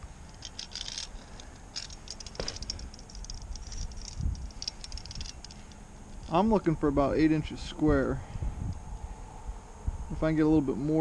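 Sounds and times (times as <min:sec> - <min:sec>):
tape measure rattling and clicking: 0:00.2 - 0:06.4.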